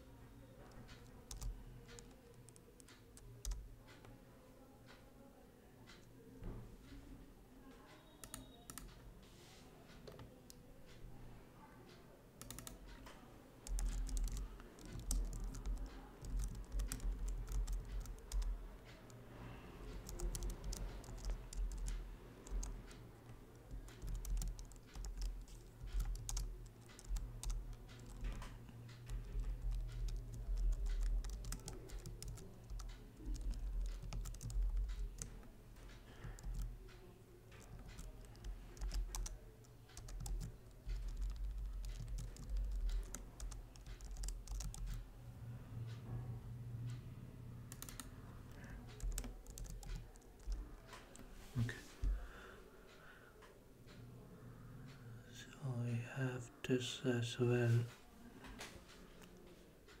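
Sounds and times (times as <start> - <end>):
computer keyboard typing: 0.6 - 4.1, 8.2 - 9.0, 12.4 - 13.0, 13.6 - 19.2, 19.8 - 45.1, 47.6 - 51.3.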